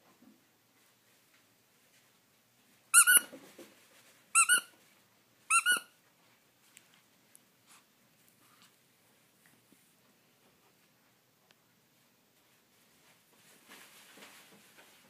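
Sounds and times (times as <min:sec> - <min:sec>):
squeaky dog toy squeaking: 0:02.9 - 0:03.4, 0:04.3 - 0:04.8, 0:05.5 - 0:06.0.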